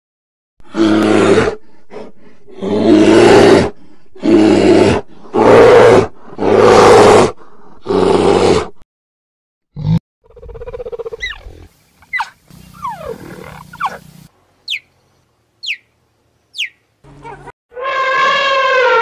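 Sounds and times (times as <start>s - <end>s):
bear roaring: 2.5s - 8.8s, 12.8s - 14.0s.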